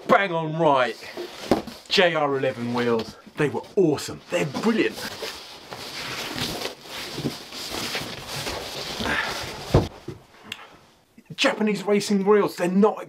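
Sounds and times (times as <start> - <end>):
cardboard box rustling and scraping: 4.3 - 9.9.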